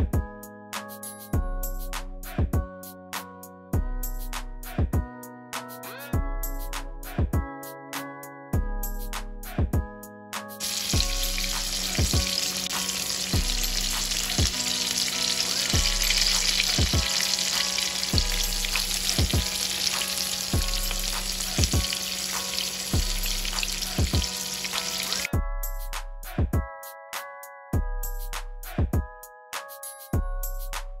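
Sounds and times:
background music with beat: 0.0 - 31.0
fish sizzling in oil: 10.6 - 25.3.

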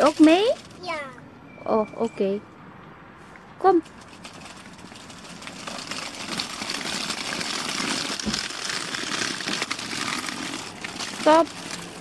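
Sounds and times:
toy stroller wheels rolling on gravel: 0.0 - 1.0, 3.7 - 12.0.

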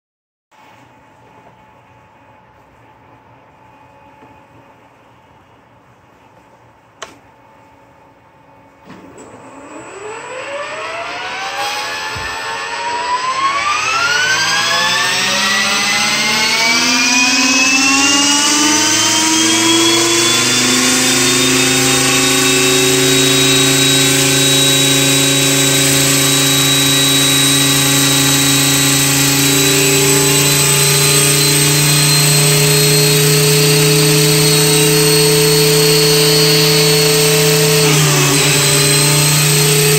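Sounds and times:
rc helicopter rotor whine: 9.4 - 39.9.

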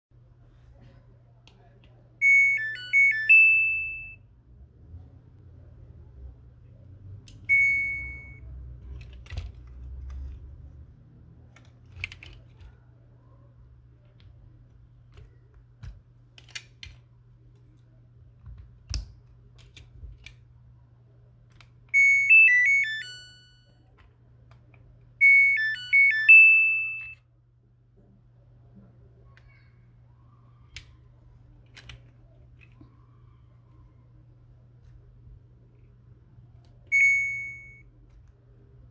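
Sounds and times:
single beep: 7.4 - 8.4, 36.9 - 37.9
electronic buzzer tune: 25.2 - 27.2.

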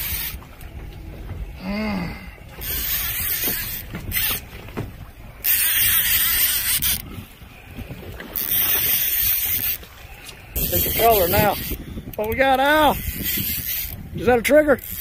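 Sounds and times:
fishing boat engine rumble: 0.0 - 15.0
wind buffeting microphone: 0.0 - 15.0.

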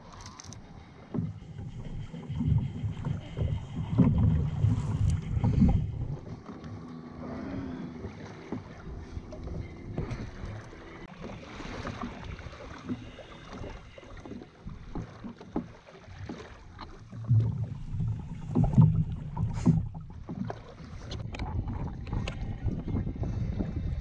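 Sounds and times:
water lapping against hull: 0.0 - 24.0
wind buffeting microphone: 1.2 - 6.5, 21.1 - 24.0.

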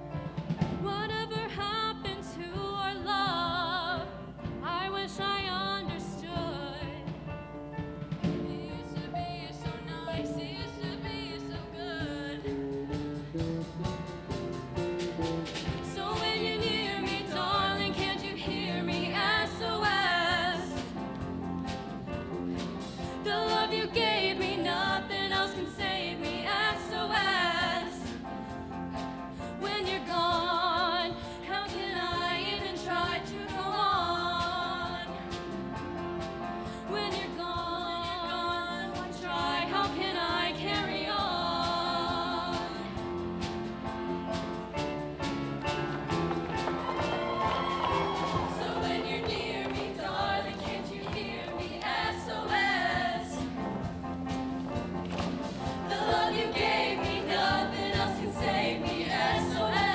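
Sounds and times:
drum kit: 0.0 - 59.9
piano: 0.0 - 59.9
women singing with vibrato: 0.8 - 7.0, 8.4 - 12.6, 15.7 - 21.0, 23.0 - 28.2, 29.4 - 35.3, 36.7 - 43.0, 47.7 - 53.6, 55.9 - 59.9.

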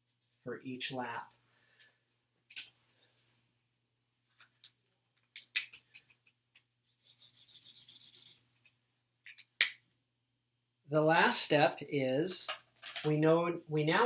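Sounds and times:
highlighter rubbing on paper: 7.0 - 8.4.

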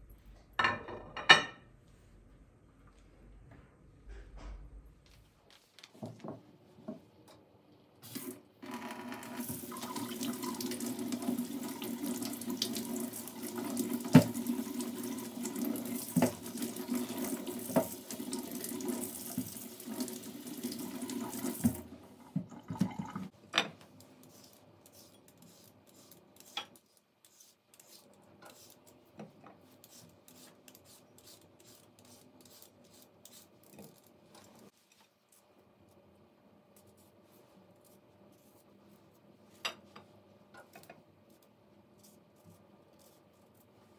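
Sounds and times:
tap water running into sink: 8.1 - 23.3.

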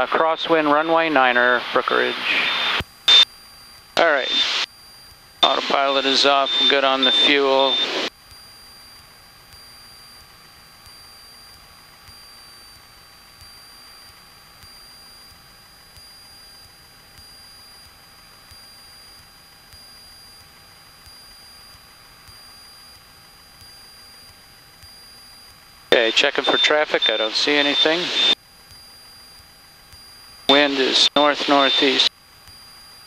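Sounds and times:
aircraft engine drone: 0.0 - 3.2, 5.4 - 8.1, 25.9 - 28.4, 30.5 - 32.1
high-pitched whine: 0.0 - 3.2, 4.0 - 4.7, 5.4 - 8.1, 24.9 - 29.3, 30.5 - 32.1.

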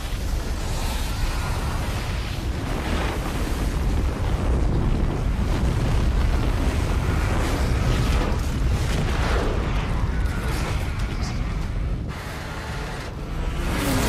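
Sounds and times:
avalanche rumble of rushing snow: 0.0 - 14.0.

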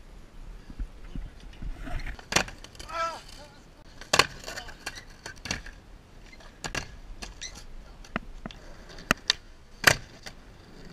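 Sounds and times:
skateboard wheels rolling: 0.5 - 10.9
skateboard clacks and snaps: 1.9 - 3.0, 4.0 - 10.9.

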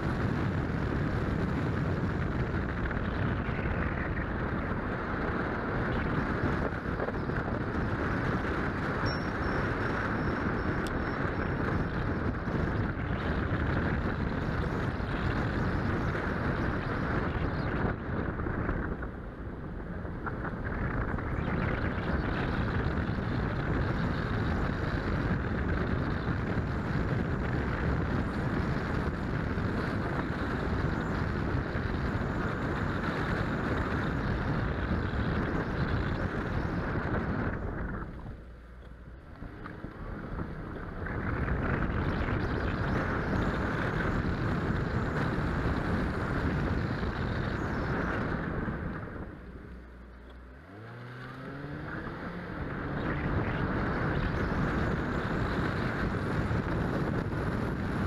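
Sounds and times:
car road and engine noise: 0.0 - 58.0
wind buffeting camera: 0.0 - 58.0.

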